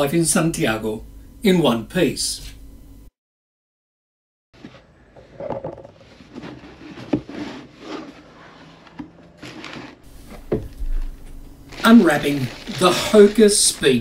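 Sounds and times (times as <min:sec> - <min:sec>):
knocks scrapes and rubbing: 0:04.6 - 0:11.0
cardboard box handled and opened: 0:05.9 - 0:10.5.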